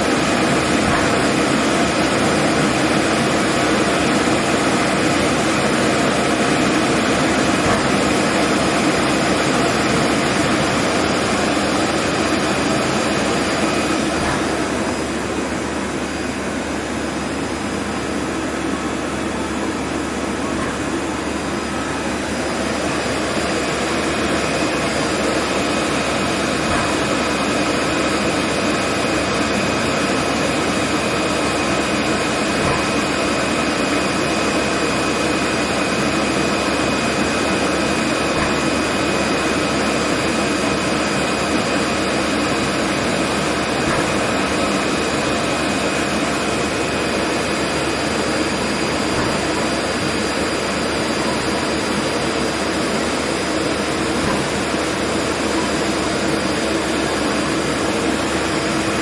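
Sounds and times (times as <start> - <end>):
high machine whine: 0.0 - 59.0
lathe mechanical whir: 0.0 - 59.0.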